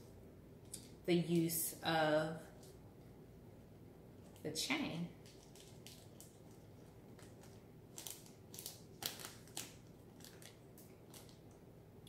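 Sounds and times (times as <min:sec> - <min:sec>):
plastic bag crinkling: 0:05.2 - 0:11.6.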